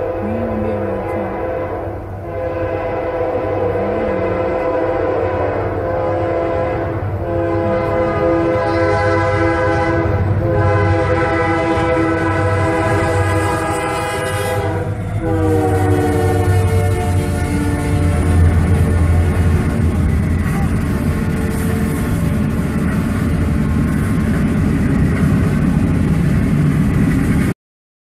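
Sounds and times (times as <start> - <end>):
locomotive horn blasts: 0.0 - 22.6
low train rumble: 0.0 - 27.6.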